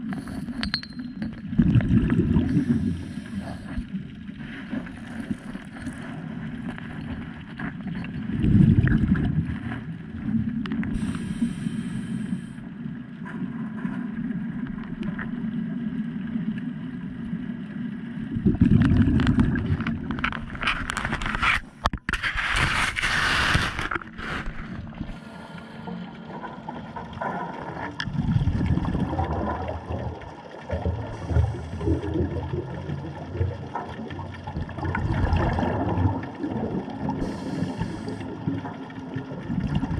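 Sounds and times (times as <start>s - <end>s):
gurgling exhaled bubbles: 1.4s - 11.5s, 18.2s - 21.0s, 25.9s - 39.9s
regulator breathing hiss: 11.0s - 12.6s, 37.2s - 38.2s.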